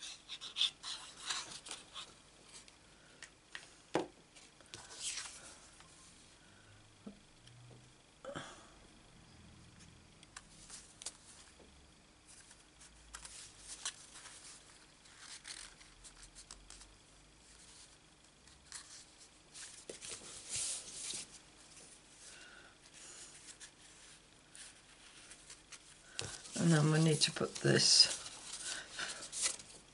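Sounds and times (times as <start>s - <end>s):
cardstock rustling and rubbing: 0.0s - 2.7s, 12.3s - 22.0s, 23.2s - 29.9s.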